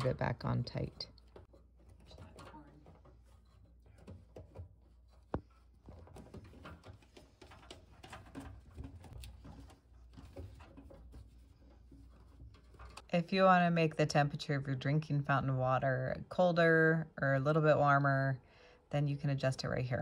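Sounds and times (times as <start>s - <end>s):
plastic pipe fittings handled: 0.0s - 13.1s.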